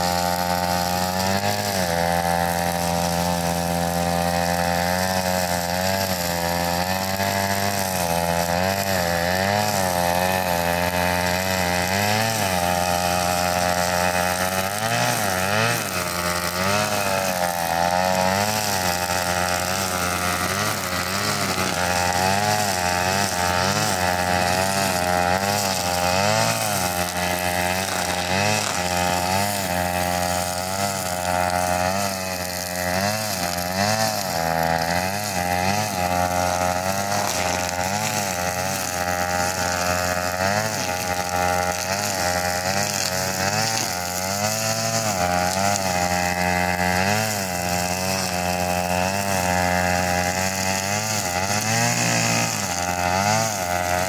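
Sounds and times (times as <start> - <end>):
brush cutter engine running: 0.0 - 54.0.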